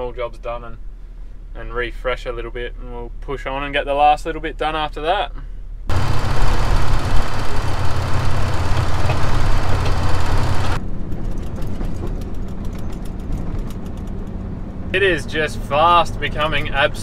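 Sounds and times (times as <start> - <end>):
vehicle engine idling: 5.5 - 17.0
vehicle driving on dirt road: 5.9 - 17.0.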